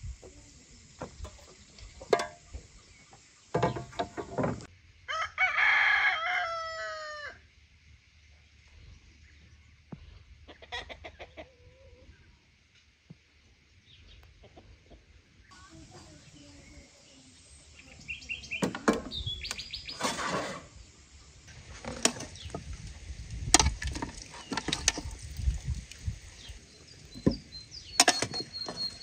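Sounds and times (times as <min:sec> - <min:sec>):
rooster crowing: 0:05.1 - 0:07.4.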